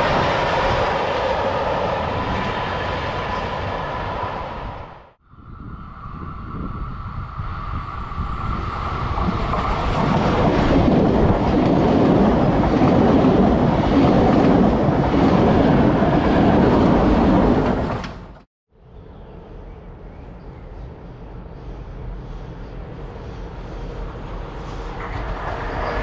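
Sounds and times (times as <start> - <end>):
train wheels rumbling on rails: 6.5 - 18.5, 21.2 - 26.0.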